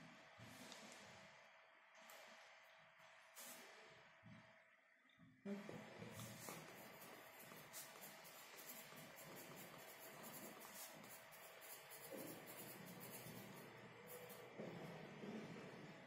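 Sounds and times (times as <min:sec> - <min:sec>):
pencil scratching on paper: 0:06.1 - 0:16.0.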